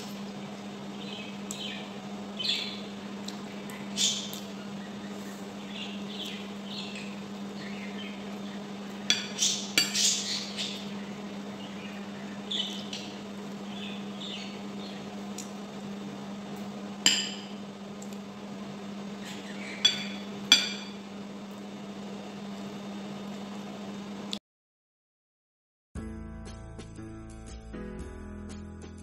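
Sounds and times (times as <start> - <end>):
steady low hum: 0.0 - 24.4
cutlery clinking on a plate: 19.8 - 21.0.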